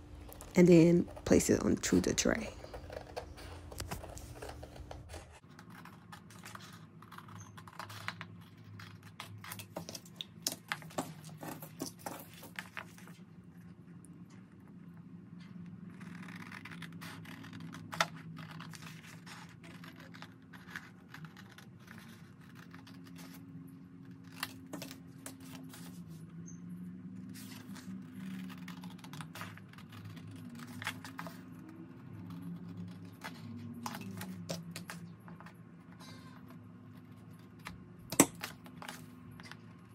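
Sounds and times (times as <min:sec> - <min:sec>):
paper rustling: 0:02.6 - 0:13.2.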